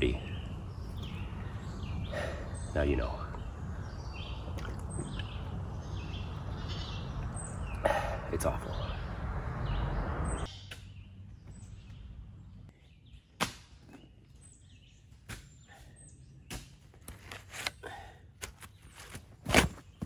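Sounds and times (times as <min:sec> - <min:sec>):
low rushing noise: 0:05.4 - 0:10.6
shovel thuds and crunches in soil: 0:15.2 - 0:15.6, 0:16.5 - 0:17.8, 0:18.4 - 0:20.0.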